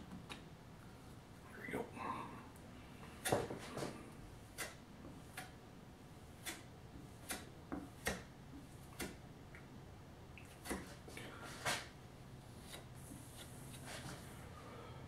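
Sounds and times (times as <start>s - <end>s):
putty knife scraping and tapping: 6.4s - 8.3s.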